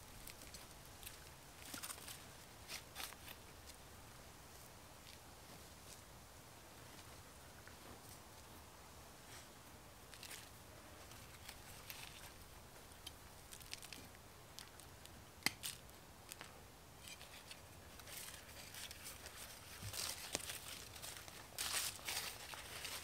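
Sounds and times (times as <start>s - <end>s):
hands rustling in soil and leaves: 9.2s - 23.0s.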